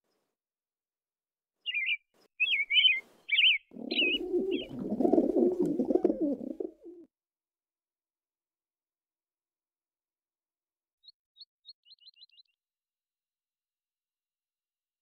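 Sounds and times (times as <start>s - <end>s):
small bird chirping: 1.6s - 4.9s, 11.0s - 12.6s
dove cooing: 3.7s - 7.1s.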